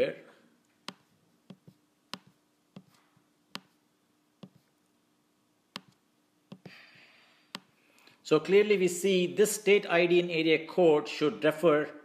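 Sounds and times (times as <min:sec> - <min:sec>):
faint steady hum: 0:00.0 - 0:09.9
computer mouse clicking: 0:00.8 - 0:03.0, 0:05.8 - 0:06.7.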